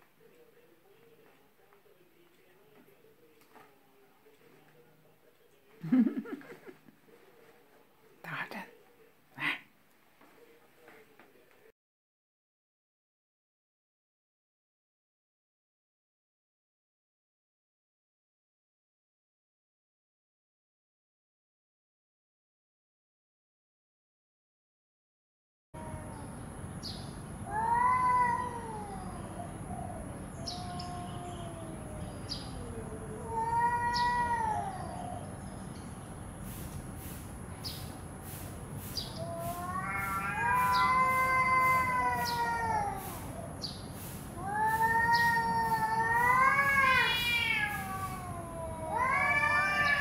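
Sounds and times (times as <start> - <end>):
cats yowling: 25.8 - 26.4, 27.4 - 35.4, 39.0 - 43.7, 44.3 - 50.0.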